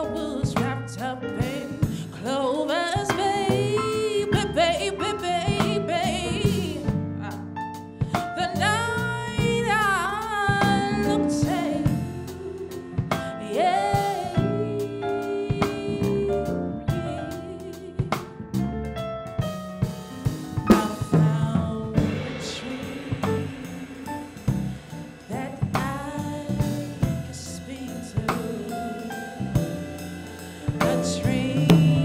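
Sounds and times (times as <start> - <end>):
woman singing soulful song: 0.0 - 18.3, 20.7 - 32.0
band with drum kit: 0.0 - 32.0.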